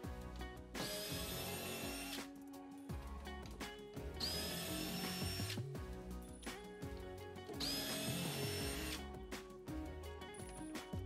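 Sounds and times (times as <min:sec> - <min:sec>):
cordless drill whining: 0:00.8 - 0:02.3, 0:04.2 - 0:05.6, 0:07.5 - 0:09.0.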